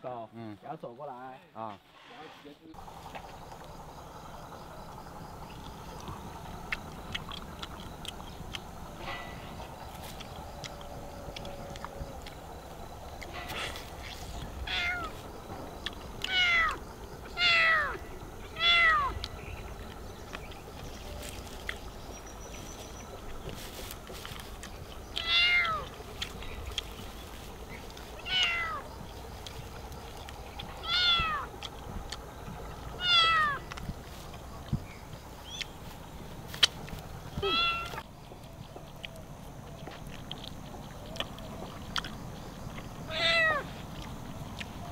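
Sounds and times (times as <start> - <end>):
cat meowing: 14.6 - 15.1, 16.3 - 16.8, 17.4 - 18.0, 18.6 - 19.1, 25.2 - 25.8, 28.2 - 28.8, 30.8 - 31.5, 33.0 - 33.6, 37.4 - 38.0, 43.1 - 43.7.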